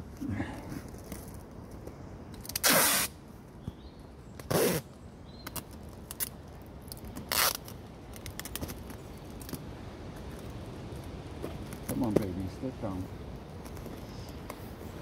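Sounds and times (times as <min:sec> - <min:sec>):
packing tape ripping: 0:02.4 - 0:03.1, 0:07.1 - 0:08.8.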